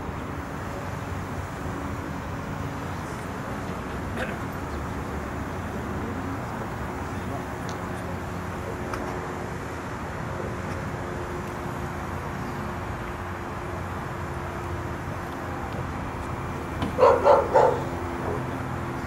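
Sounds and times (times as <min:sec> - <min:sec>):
helicopters humming: 0:00.0 - 0:19.0
dog barking: 0:17.0 - 0:18.5.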